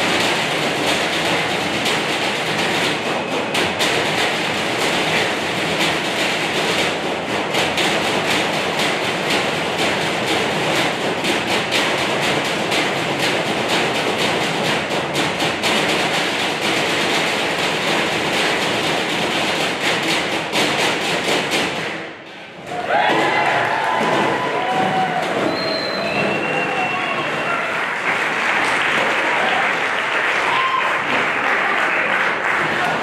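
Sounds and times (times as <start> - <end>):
drumming on metal trash cans: 0.0 - 27.8, 32.3 - 33.0.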